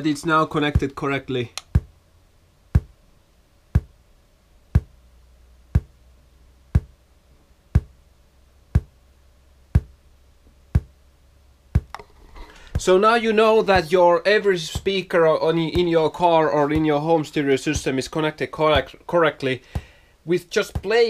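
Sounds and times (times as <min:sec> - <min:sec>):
faint low hum: 0:00.0 - 0:21.0
sharp pops from speaker: 0:11.7 - 0:12.9.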